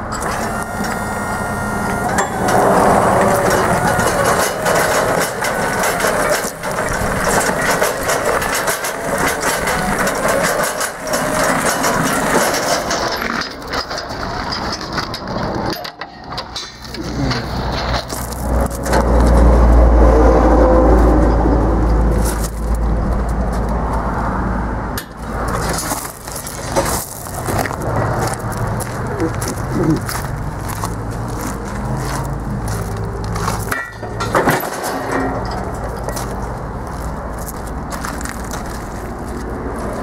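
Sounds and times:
gravel crunching: 0.0 - 40.0
deep rumble: 17.0 - 24.6.

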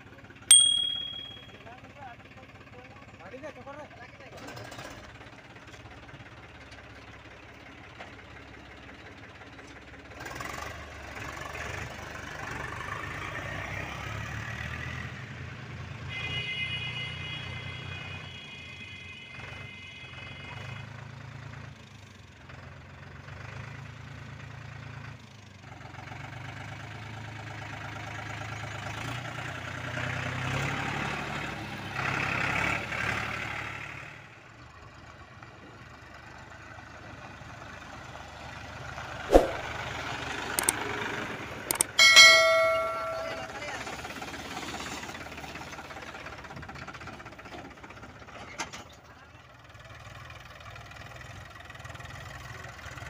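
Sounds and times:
tractor engines running: 0.0 - 0.5, 1.3 - 15.8, 21.0 - 53.0
steady high tone: 0.5 - 1.6, 41.8 - 43.7.

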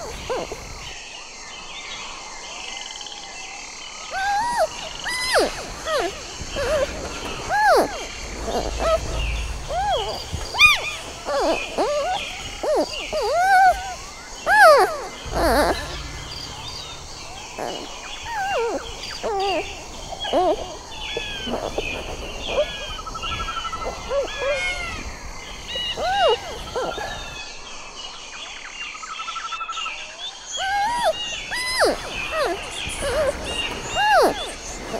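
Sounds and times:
panda chirping and squeaking: 4.2 - 6.9, 7.5 - 16.8, 30.6 - 33.3.

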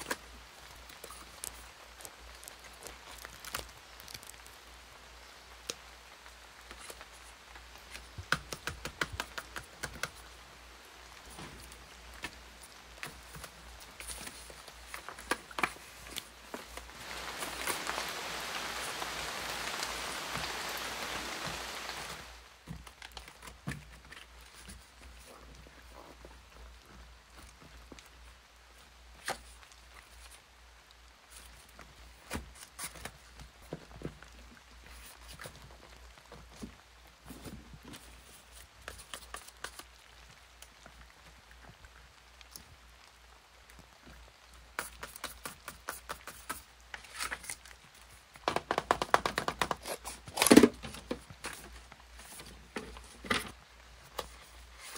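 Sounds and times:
plastic sleeves and paper rustling: 0.0 - 42.8, 43.7 - 54.9
binder pages turning: 11.3 - 19.8, 37.4 - 40.0, 44.8 - 54.9.

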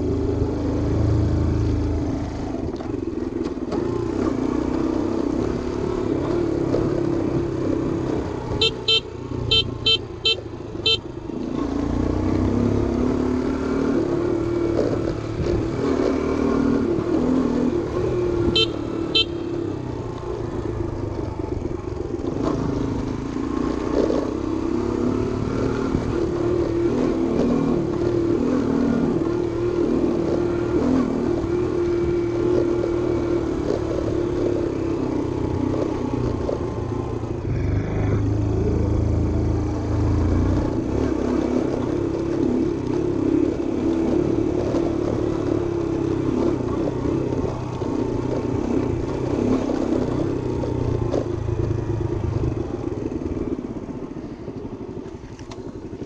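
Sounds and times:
wind and road rumble: 0.0 - 56.0
small motorbike engine running: 2.6 - 56.0
horn beeps: 8.5 - 11.1, 18.4 - 19.7.

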